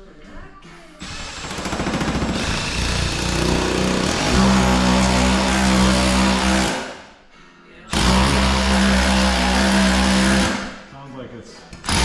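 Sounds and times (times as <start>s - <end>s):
drill rattling on metal panel: 1.0s - 6.9s, 7.9s - 10.7s.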